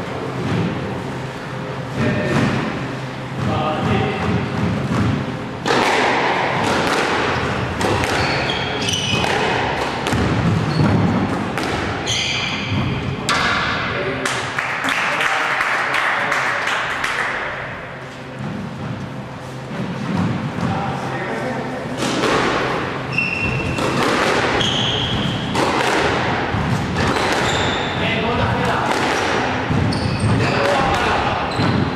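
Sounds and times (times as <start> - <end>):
squash ball cracking off rackets: 4.3 - 12.1, 22.0 - 28.0, 28.6 - 31.9
shoe squeaks on court floor: 8.1 - 9.2, 10.6 - 11.1, 12.0 - 13.0, 23.1 - 23.9, 24.5 - 25.5, 27.0 - 28.0, 29.8 - 30.8, 31.5 - 31.9.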